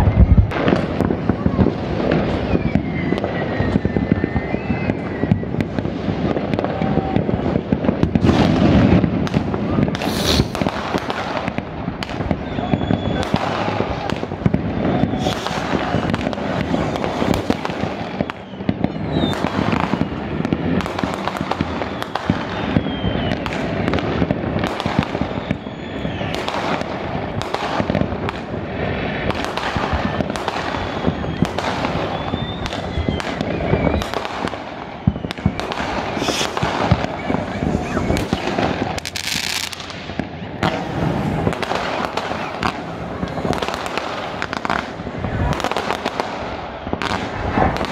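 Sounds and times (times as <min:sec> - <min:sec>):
fireworks bangs and crackling: 0:00.0 - 0:47.9
whistling rockets: 0:00.0 - 0:47.9.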